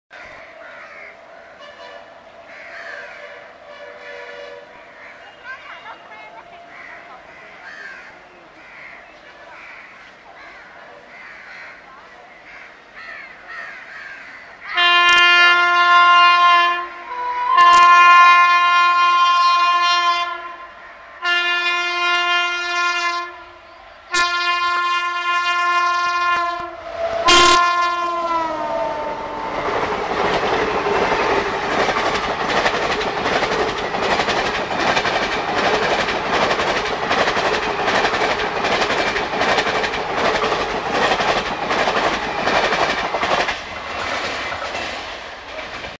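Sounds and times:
locomotive air horn blasts: 1.6 - 2.4, 3.2 - 4.8, 14.8 - 29.5
train wheels clickety-clack: 29.5 - 46.0.

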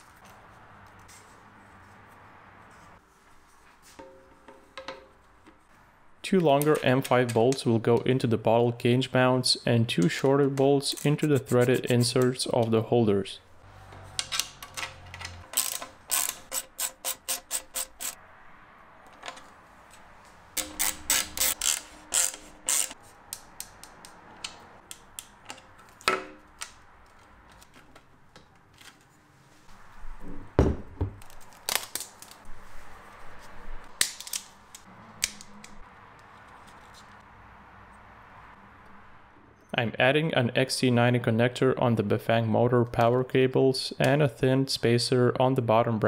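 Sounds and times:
ratchet pawl clicks: 15.5 - 18.2, 20.6 - 23.0.

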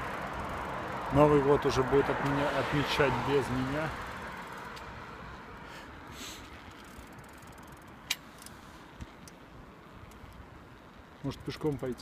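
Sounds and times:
bicycle riding rumble and hiss: 0.0 - 12.0.

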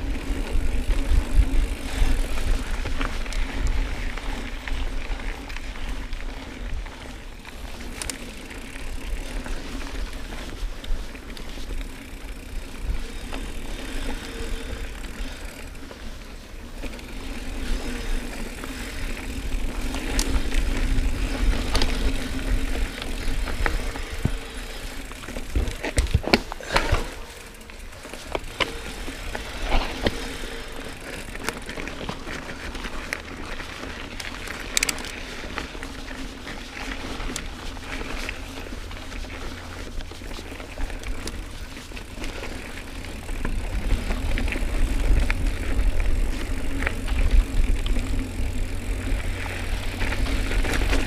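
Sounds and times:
bike tyres rumbling on dirt: 0.0 - 51.0
bike knocks and rattles: 19.4 - 32.6.

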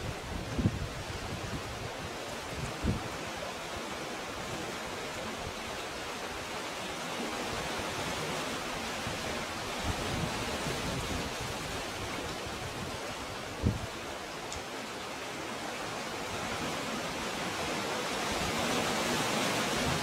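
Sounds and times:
wind buffeting microphone: 0.0 - 3.1, 9.0 - 14.0
sea water washing through cove: 0.0 - 20.0.

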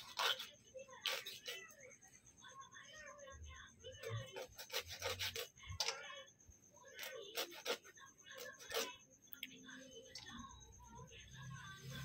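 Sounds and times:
scissor blade scraping fish scales: 0.0 - 1.6, 4.2 - 6.0, 7.0 - 8.9.

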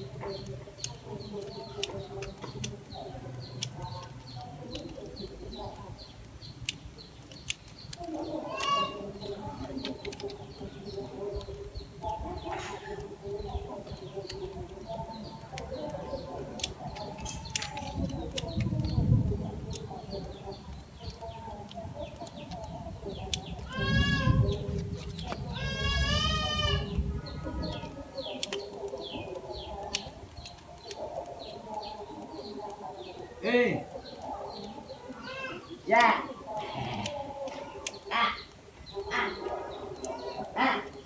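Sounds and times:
sharp clicks: 0.0 - 36.2
small birds chirping: 0.0 - 41.0.

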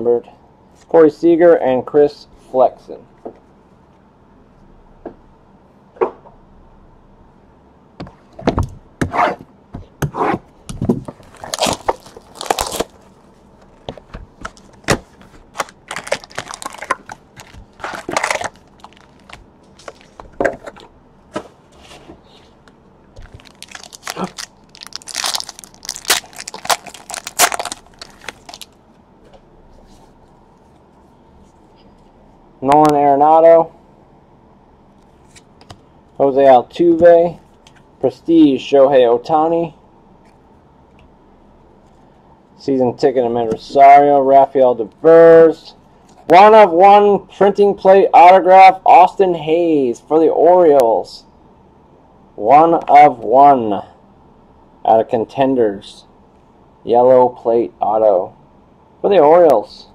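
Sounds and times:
cardboard and wrapper crinkling tearing: 11.2 - 13.1, 14.5 - 20.2, 23.2 - 28.8.

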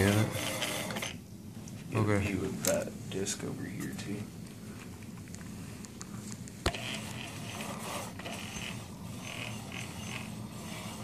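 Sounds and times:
brake rotor scraping caliper: 0.0 - 1.2, 6.7 - 11.0.

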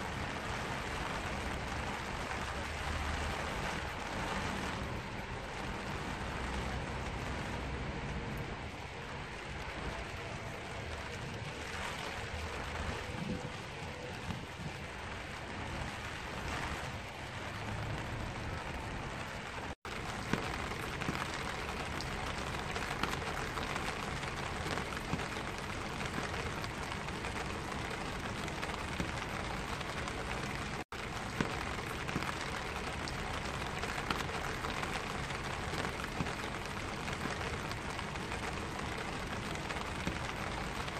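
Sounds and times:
rain on an umbrella: 0.0 - 40.9
drops ticking on umbrella: 19.8 - 40.9.

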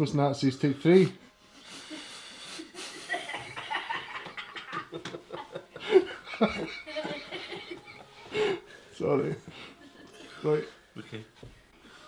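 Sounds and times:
men laughing: 1.8 - 11.3.

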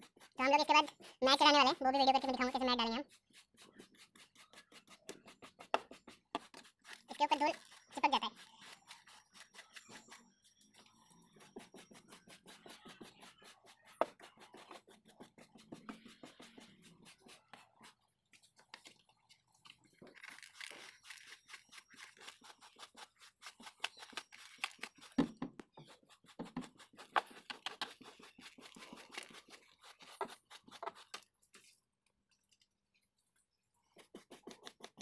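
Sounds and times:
brush scrubbing carpet: 0.0 - 18.1, 21.0 - 25.2, 25.8 - 31.3.

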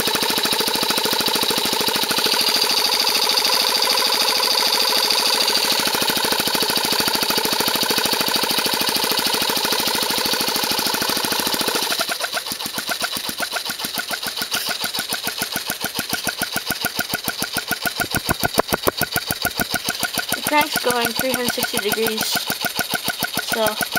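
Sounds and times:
model engine pulsing: 0.0 - 23.9
small air compressor: 0.0 - 23.9.

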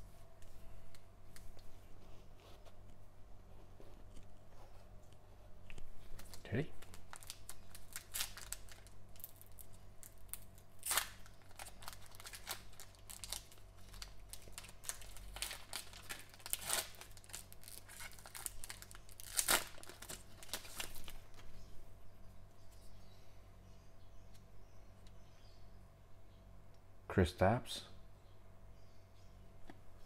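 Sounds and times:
foil wrappers crinkling and ripping: 6.0 - 21.4.

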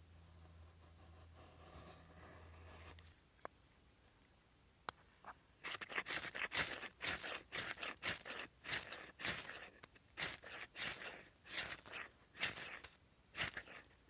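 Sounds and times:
knife scraping ferrocerium rod: 5.6 - 14.0.

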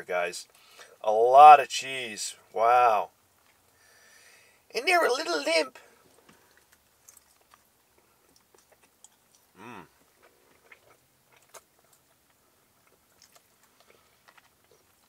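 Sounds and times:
man chewing: 5.9 - 15.0
man humming: 9.6 - 10.0.

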